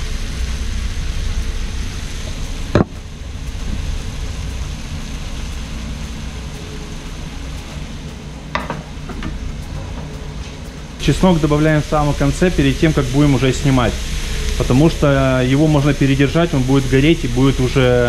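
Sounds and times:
vegetables sizzling in a frying pan: 0.0 - 18.0.

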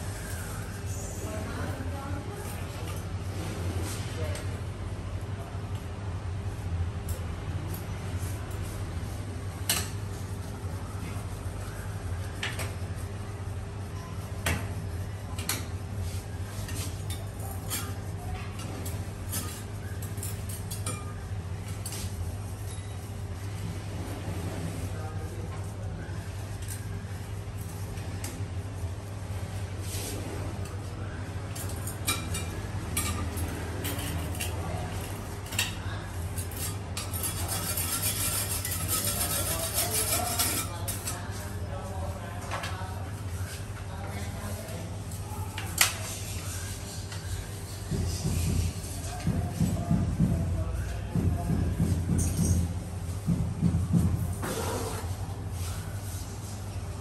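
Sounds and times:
hand tool scraping grout: 37.0 - 41.1.

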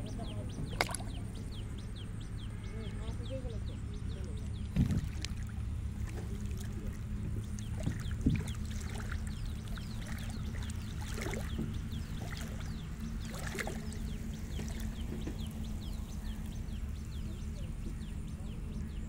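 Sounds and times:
low rumble: 0.0 - 19.0
small birds chirping: 0.0 - 19.0
soft knocks: 7.3 - 8.6.

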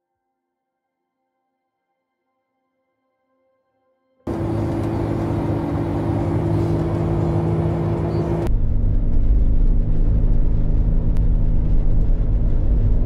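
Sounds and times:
car engine rumble: 4.3 - 13.0.

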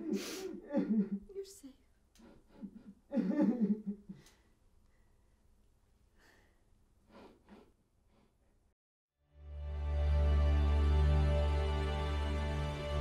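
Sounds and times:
woman sobbing: 0.0 - 1.4, 2.3 - 4.2.

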